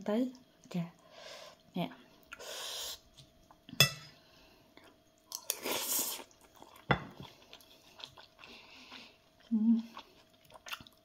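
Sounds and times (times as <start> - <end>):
faint steady hum: 0.0 - 11.0
person chewing: 4.8 - 11.0.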